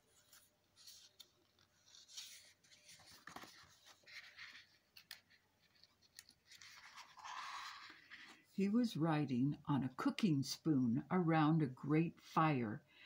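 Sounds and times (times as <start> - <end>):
paper pages rustling: 0.0 - 8.6
soft page clicks: 0.2 - 8.0.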